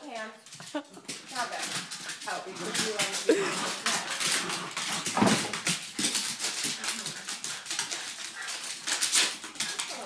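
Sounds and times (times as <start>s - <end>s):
paws scuffing on hardwood floor: 1.4s - 10.0s
dogs vocalizing: 1.8s - 10.0s.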